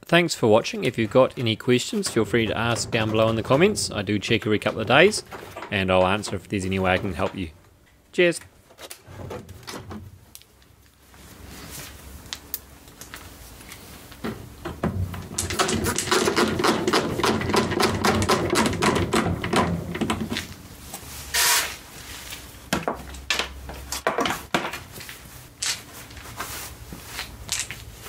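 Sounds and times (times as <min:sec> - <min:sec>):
sharp knocks: 0:14.3 - 0:20.5
short burst of hiss: 0:21.3 - 0:21.8.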